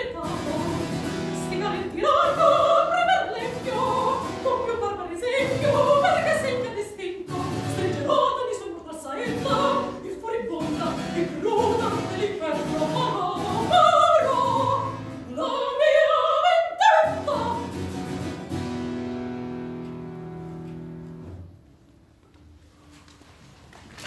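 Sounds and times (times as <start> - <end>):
soprano singing: 0.0 - 17.9.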